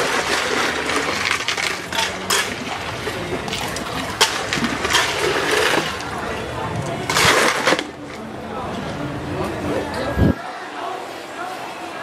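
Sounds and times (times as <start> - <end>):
ladle clacking against tub: 0.0 - 6.1
liquid sloshing: 0.0 - 8.2.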